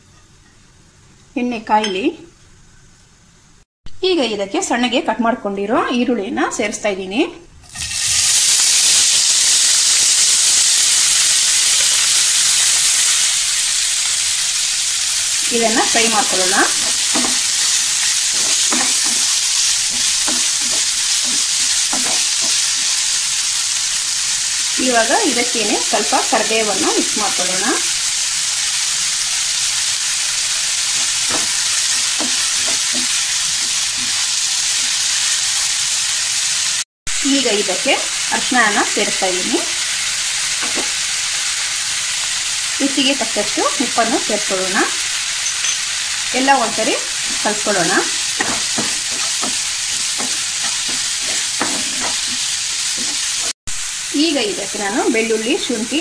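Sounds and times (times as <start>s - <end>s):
onions sizzling in hot oil: 7.6s - 56.0s
spatula stirring: 15.9s - 23.1s, 30.9s - 34.3s, 47.2s - 53.6s.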